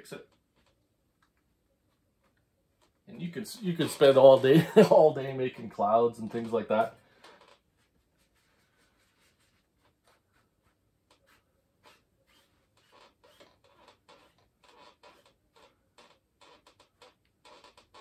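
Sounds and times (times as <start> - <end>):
paintbrush swishing on canvas: 7.7 - 11.5.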